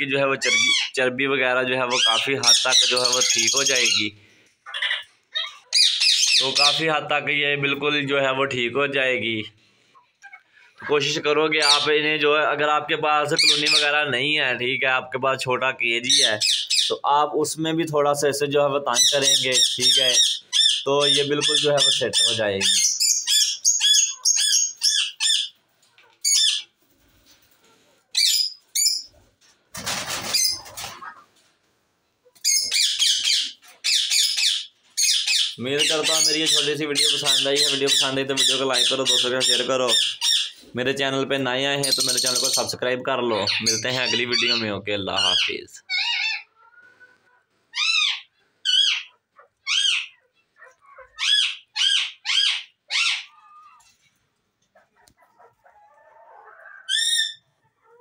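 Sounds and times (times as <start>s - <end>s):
parakeets screeching: 0.3s - 1.1s, 1.8s - 6.9s, 10.2s - 12.0s, 13.2s - 14.1s, 16.0s - 17.0s, 18.9s - 25.6s, 26.2s - 26.8s, 28.1s - 29.1s, 29.9s - 31.2s, 32.4s - 40.6s, 41.8s - 46.6s, 47.7s - 53.9s, 56.7s - 57.5s.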